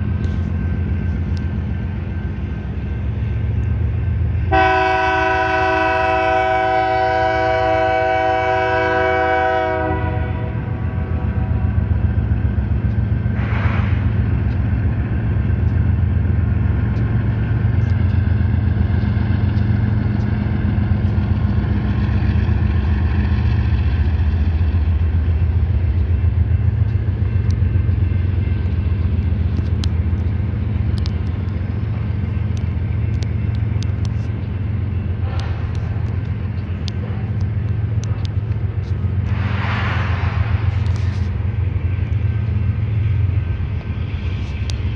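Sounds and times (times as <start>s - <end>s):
freight train engine rumble: 0.0s - 44.9s
locomotive horn: 4.5s - 11.8s, 35.2s - 36.1s.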